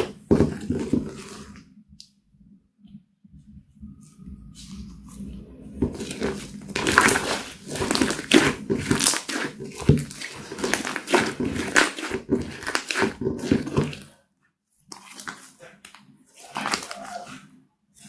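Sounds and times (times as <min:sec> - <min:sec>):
slime squelching and popping: 0:05.8 - 0:14.1, 0:14.8 - 0:17.4.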